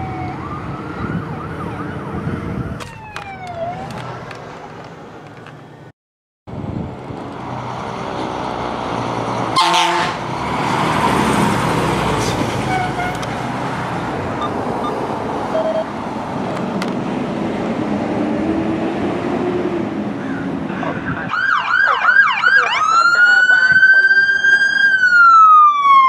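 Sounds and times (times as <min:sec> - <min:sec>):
fire engine passing: 0:00.0 - 0:05.9, 0:06.5 - 0:26.0
air horn blast: 0:09.6 - 0:10.2.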